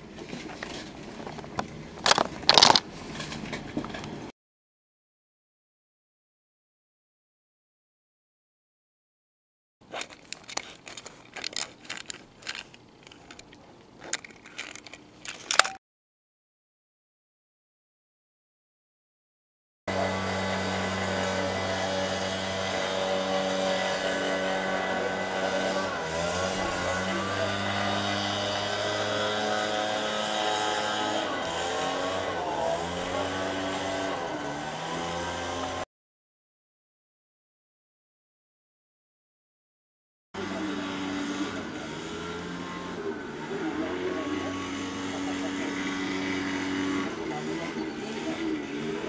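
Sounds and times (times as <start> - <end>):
motor hum: 9.8 - 15.8, 19.9 - 35.8, 40.4 - 49.0.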